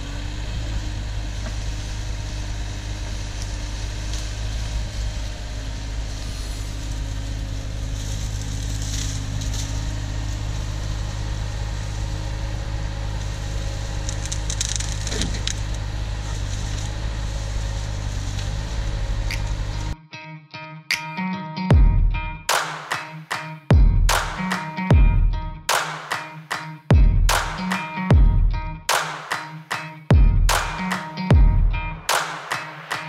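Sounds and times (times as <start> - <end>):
diesel engine running: 0.0 - 20.0, 30.1 - 32.2
wood crackling and snapping: 13.1 - 18.6.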